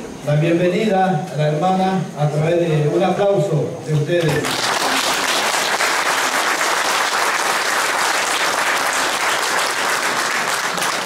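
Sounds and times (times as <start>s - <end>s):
audience applauding: 4.2s - 11.0s
hands clapping close by: 4.2s - 11.0s.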